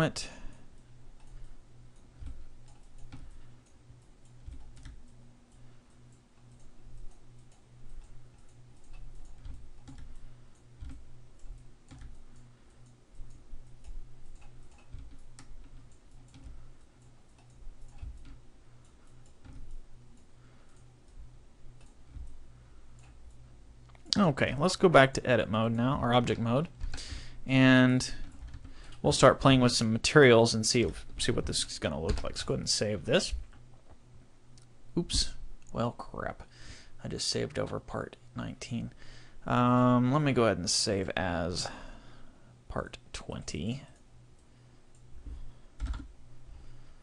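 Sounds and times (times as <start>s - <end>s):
steady low hum: 0.0s - 47.0s
computer mouse clicks: 1.2s - 21.2s, 21.8s - 24.2s, 44.0s - 46.1s.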